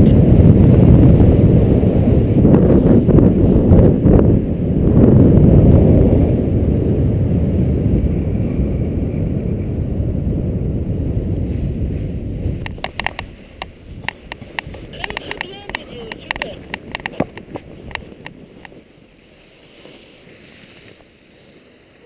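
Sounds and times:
wind buffeting microphone: 0:00.0 - 0:21.3
light taps and rustles: 0:12.6 - 0:18.8.

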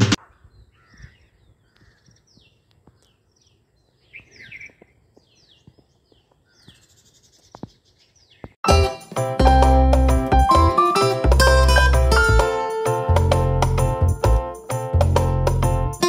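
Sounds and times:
birds chirping: 0:00.2 - 0:08.6.

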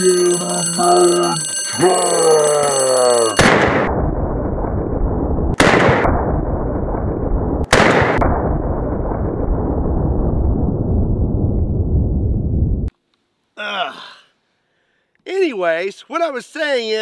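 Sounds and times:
rifle shots: 0:03.4 - 0:03.9, 0:05.6 - 0:06.4, 0:07.6 - 0:08.6
low rumble: 0:03.4 - 0:12.9.

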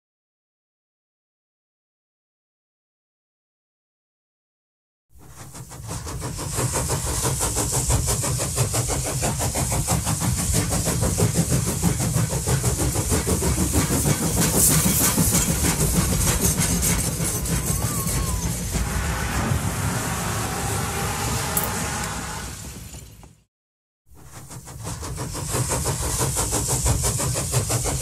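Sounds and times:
hiss: 0:05.2 - 0:23.0, 0:24.2 - 0:28.0
engine running with rapid pulse: 0:05.5 - 0:23.4.

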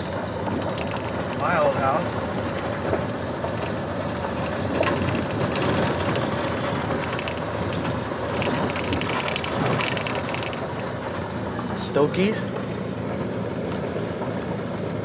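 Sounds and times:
tyre and road noise in car: 0:00.0 - 0:15.0
car cabin rattles and clicks: 0:00.4 - 0:10.8.

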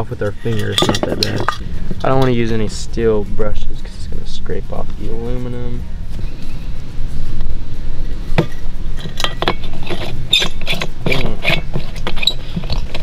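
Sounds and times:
metal cap clicking and scraping: 0:00.0 - 0:02.6, 0:08.4 - 0:13.0
steady low rumble: 0:00.0 - 0:13.0.

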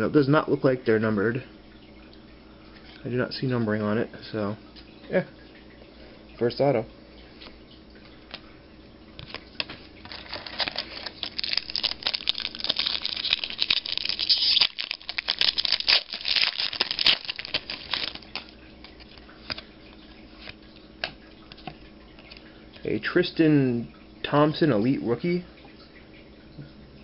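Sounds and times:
foil wrapper crinkling: 0:10.0 - 0:19.7.

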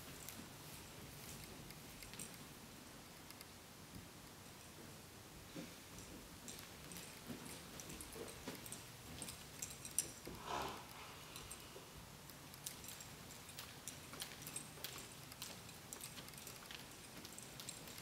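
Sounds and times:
horse breathing: 0:10.2 - 0:12.1
horse hooves on soft dirt: 0:12.7 - 0:18.0.

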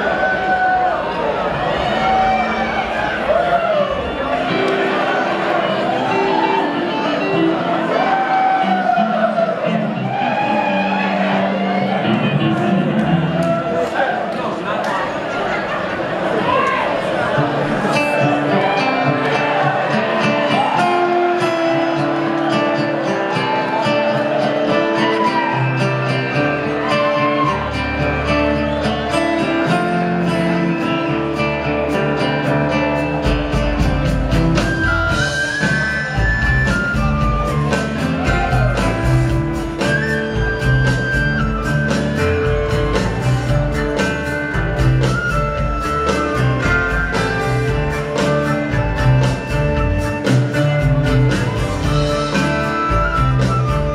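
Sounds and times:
drums: 0:00.0 - 0:14.1, 0:17.2 - 0:53.9
string band led by guitar: 0:00.0 - 0:53.9
bass: 0:24.3 - 0:53.9.

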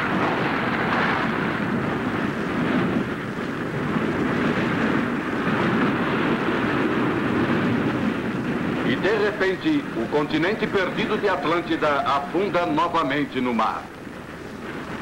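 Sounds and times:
surging sea water: 0:00.0 - 0:15.0.

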